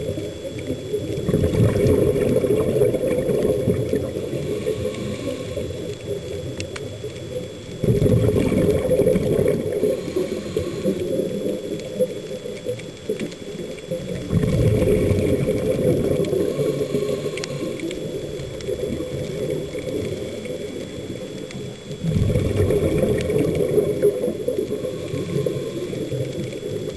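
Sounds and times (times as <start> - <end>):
diver exhaling bubbles underwater: 0.0 - 26.9
low underwater rushing: 0.0 - 26.9.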